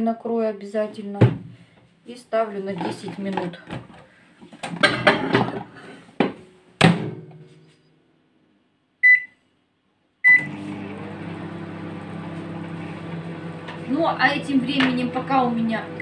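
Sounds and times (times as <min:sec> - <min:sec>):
dish knocking and clattering: 0:04.6 - 0:06.4
keypad beeps: 0:09.0 - 0:09.4
microwave humming: 0:10.3 - 0:16.0.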